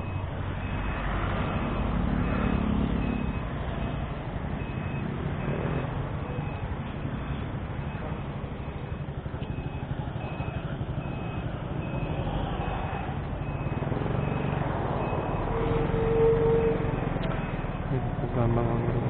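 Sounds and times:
bus passing: 0.0s - 19.0s
road noise: 0.0s - 19.0s
faint high beep: 4.6s - 18.0s.

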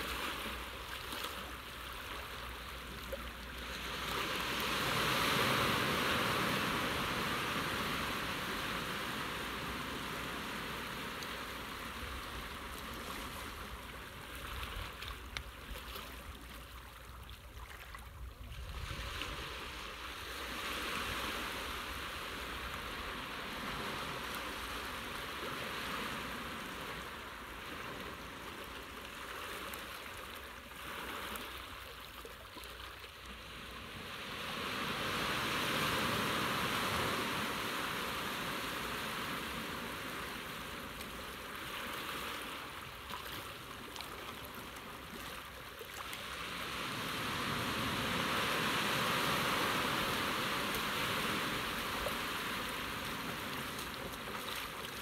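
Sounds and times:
seawater washing and swirling: 48.4s - 55.0s.

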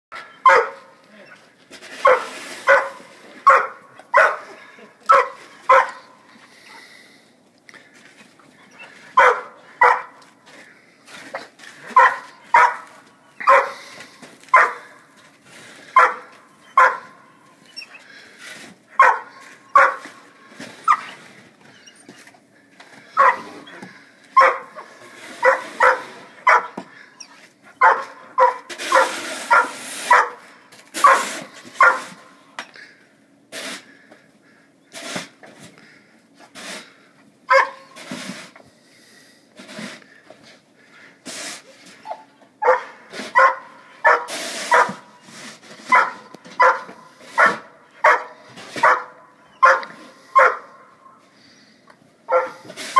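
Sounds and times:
dog barking: 0.4s - 0.9s, 2.0s - 4.5s, 5.1s - 6.1s, 9.2s - 10.2s, 11.9s - 13.8s, 14.5s - 14.9s, 16.0s - 17.1s, 19.0s - 20.0s, 23.2s - 23.6s, 24.4s - 24.8s, 25.4s - 26.8s, 27.8s - 30.4s, 31.0s - 32.1s, 37.5s - 37.8s, 42.6s - 45.0s, 45.9s - 50.8s, 52.3s - 52.6s.

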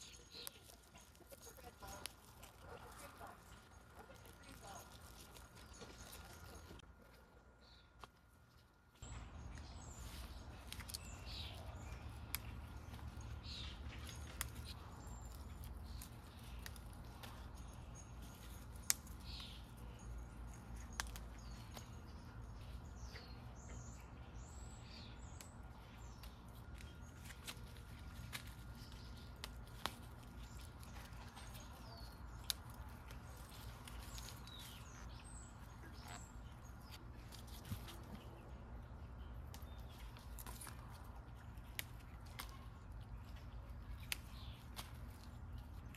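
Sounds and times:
birds chirping: 0.0s - 45.9s
flower stems snapping: 9.1s - 20.0s, 20.7s - 22.0s, 25.2s - 38.2s, 39.2s - 45.9s.

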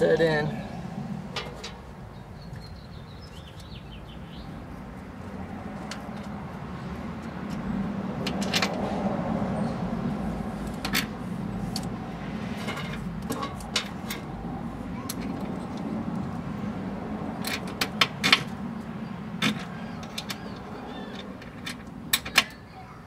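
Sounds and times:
steady low rumble: 0.0s - 17.4s.

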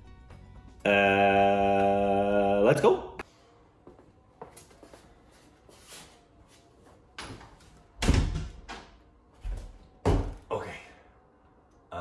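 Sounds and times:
door shutting with heavy thud: 8.0s - 8.8s.

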